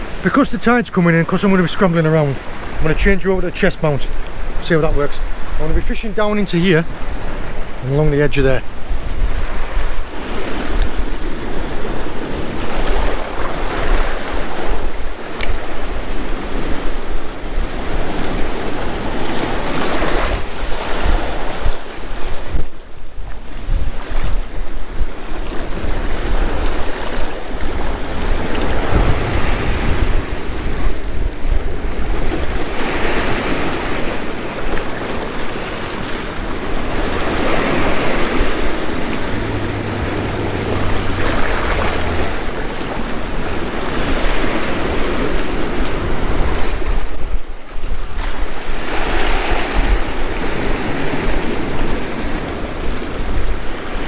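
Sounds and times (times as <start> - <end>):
wind buffeting microphone: 2.4 - 54.0
surf breaking on rocks: 24.0 - 47.2.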